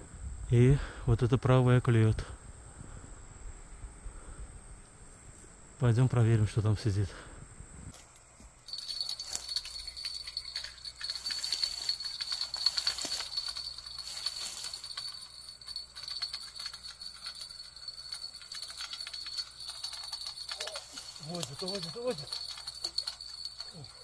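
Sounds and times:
fishing reel ticking: 8.7 - 24.0
high-pitched insect drone: 8.7 - 24.0.

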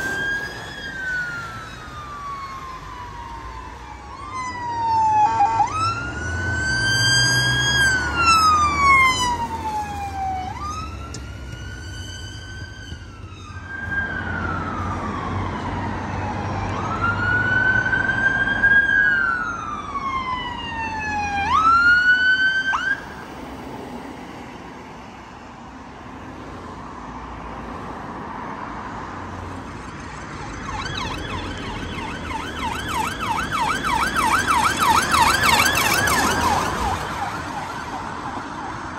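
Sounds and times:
fast yelp siren: 0.0 - 11.0, 30.4 - 38.9
wail siren: 0.0 - 23.5, 30.4 - 38.9
traffic noise: 0.0 - 38.9.

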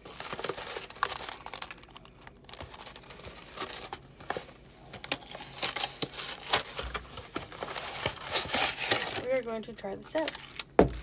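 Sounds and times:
cardboard carton rustling: 0.0 - 1.9, 5.3 - 9.5
plastic tray crackling: 0.0 - 4.4.

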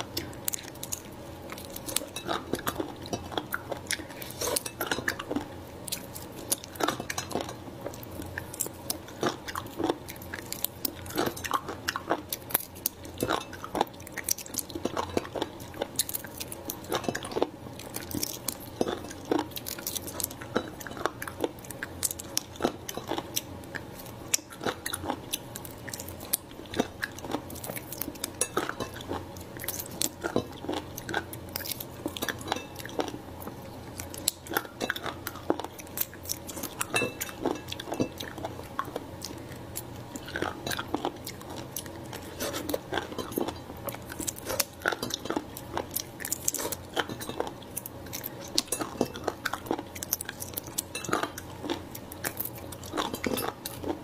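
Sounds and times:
wet chewing: 0.0 - 54.0.

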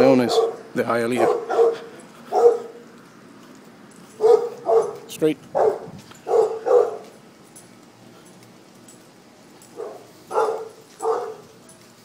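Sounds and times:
dog barking: 0.2 - 2.8, 4.2 - 7.2, 9.7 - 11.8.

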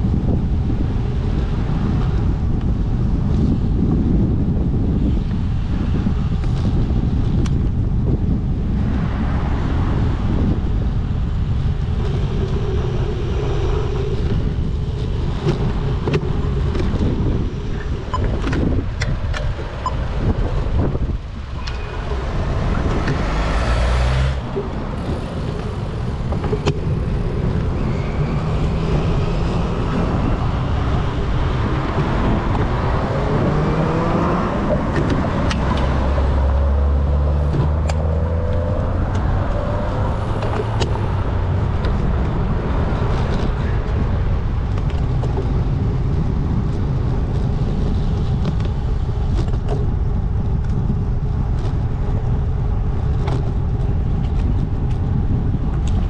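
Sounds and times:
wind rumbling on microphone: 0.0 - 56.0
motor vehicles going by: 5.1 - 56.0
vehicle engine speeding up: 11.8 - 44.3.

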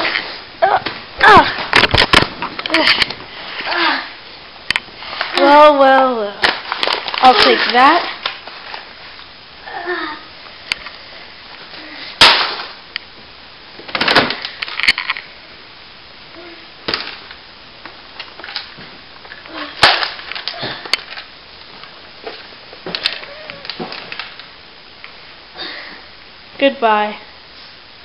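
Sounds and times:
rustling handling noise: 4.8 - 9.4.

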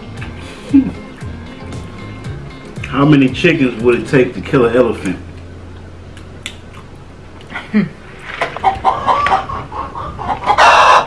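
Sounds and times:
chicken clucking: 8.4 - 11.0.

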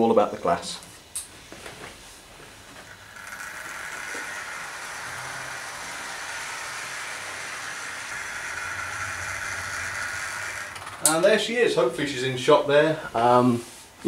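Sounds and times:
model train running on track: 2.9 - 11.2.

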